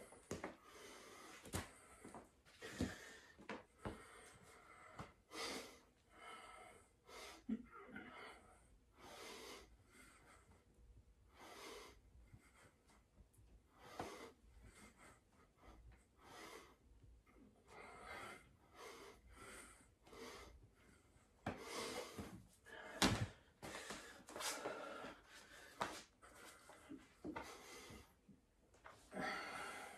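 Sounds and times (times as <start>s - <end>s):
man breathing hard: 0.0s - 10.7s, 17.6s - 28.3s, 29.1s - 29.9s.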